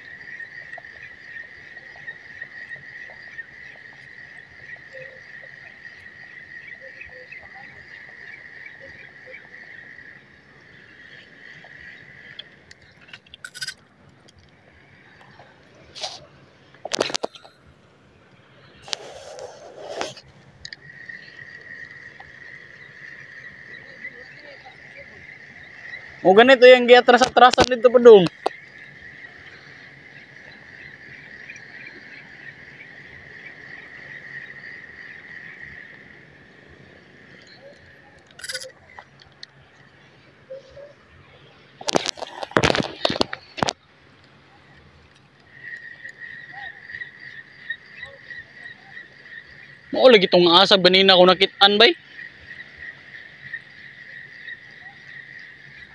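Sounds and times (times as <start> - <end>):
frogs calling: 0.0 - 55.9
shrill chorus of calling animals: 45.4 - 55.9.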